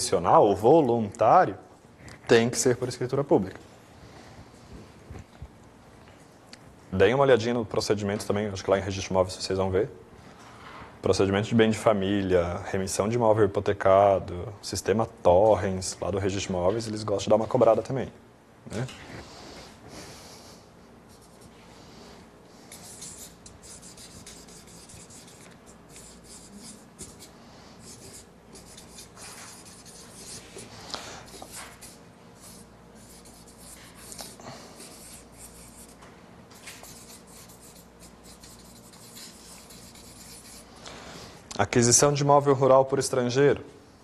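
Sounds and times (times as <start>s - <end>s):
marker scratching on paper: 21.1s - 21.6s, 22.6s - 36.0s, 36.6s - 40.7s.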